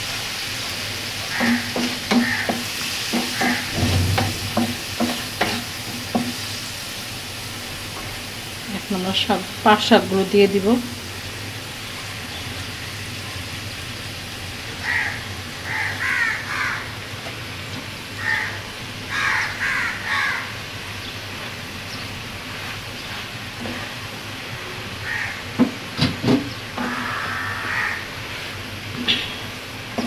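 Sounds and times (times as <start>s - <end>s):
steady background hiss: 0.0s - 30.0s
crows cawing: 1.3s - 3.8s, 14.8s - 17.0s, 18.2s - 20.6s, 25.0s - 25.6s, 26.8s - 28.2s
sharp knocks: 1.4s - 6.4s.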